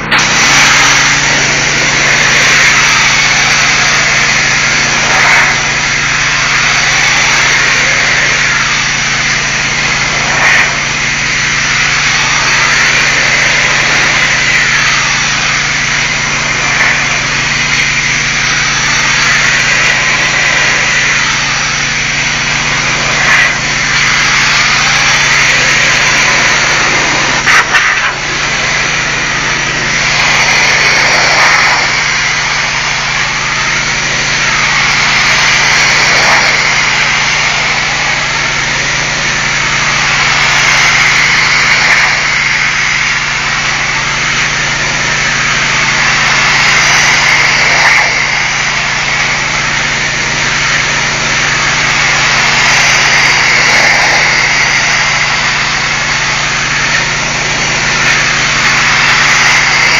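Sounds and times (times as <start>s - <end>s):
engine hum: 0.0s - 59.9s
pressure washer spray hissing: 0.0s - 59.9s.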